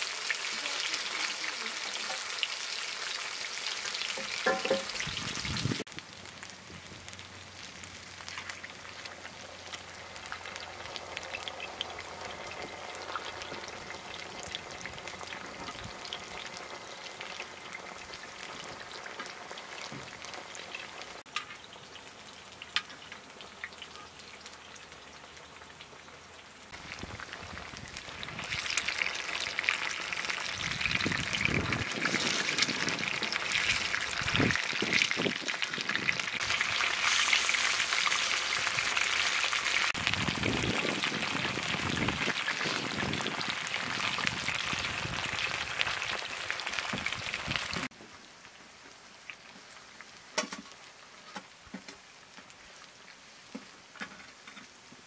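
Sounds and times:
hot oil sizzling and crackling: 0.0 - 55.0
spoon knocking against pan: 4.2 - 5.0.

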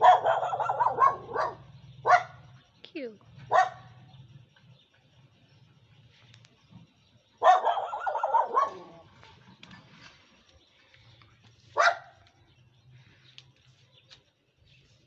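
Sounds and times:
dog barking: 0.0 - 2.5, 3.5 - 4.0, 7.4 - 9.0, 11.8 - 12.2.

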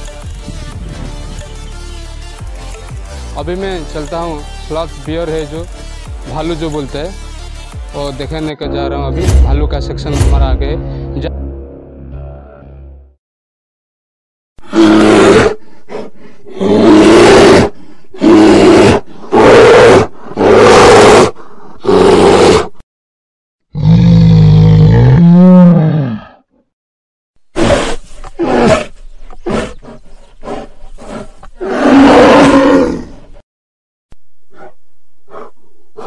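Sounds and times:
bears roaring: 14.6 - 22.7, 23.7 - 26.4, 27.6 - 33.3.

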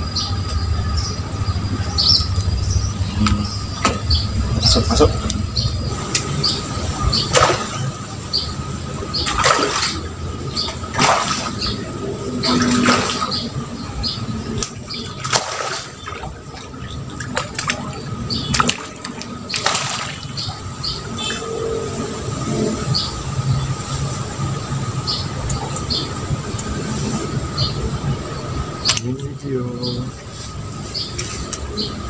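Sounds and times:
fish splashing in water: 3.7 - 21.3.

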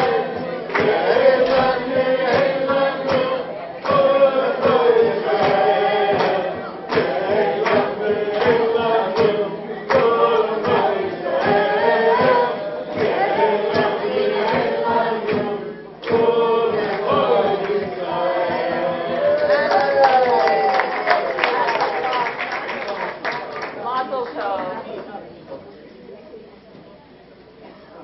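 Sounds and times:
steady sharp beat: 0.0 - 19.7
crowd singing: 0.0 - 21.8.

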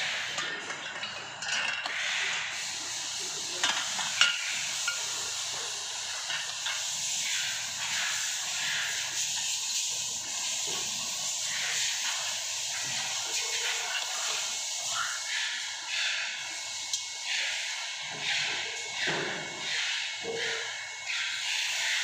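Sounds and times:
steady hiss: 1.9 - 17.8.

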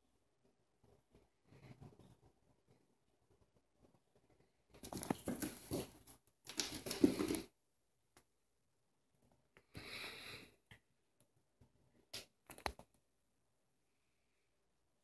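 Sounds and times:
cat claws scrabbling on floor: 4.8 - 7.5
toy skidding across wood floor: 4.9 - 7.5.

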